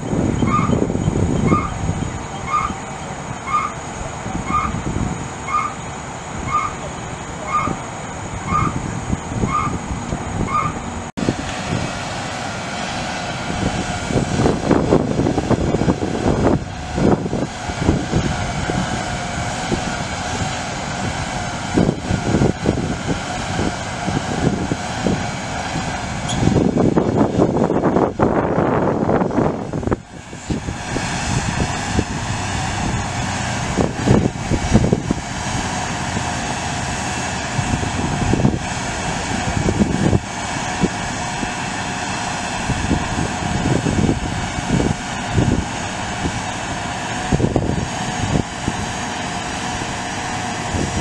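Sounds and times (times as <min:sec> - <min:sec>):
warning beeper: 0:00.0 - 0:10.9
diesel engine running: 0:00.0 - 0:51.0
sustained whine: 0:00.0 - 0:51.0.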